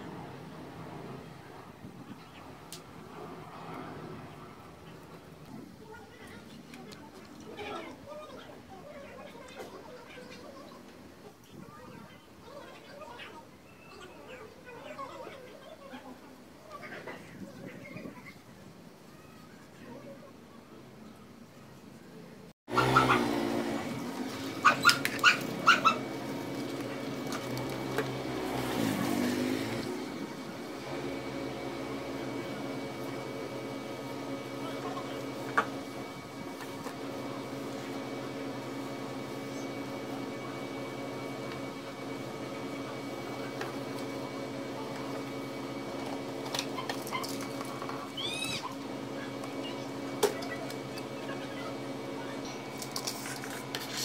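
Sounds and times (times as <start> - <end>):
dog yelping: 22.7 - 23.4, 24.6 - 26.1
dog whining: 24.6 - 26.0, 48.1 - 48.8.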